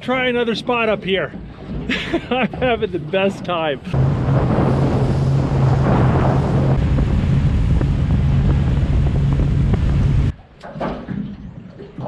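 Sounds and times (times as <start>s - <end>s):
hull rushing through water: 0.0s - 10.4s
outboard motor drone: 0.6s - 10.4s
wind on microphone: 3.9s - 10.4s.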